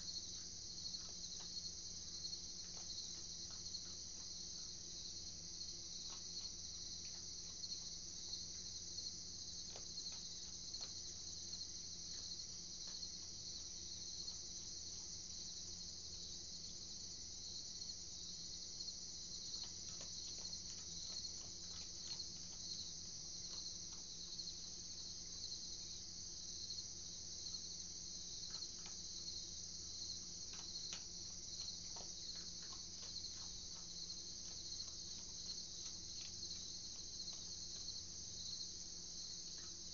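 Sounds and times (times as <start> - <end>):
crickets trilling: 0.0 - 39.9
animal chewing dry pellets: 19.4 - 24.4, 30.0 - 37.9.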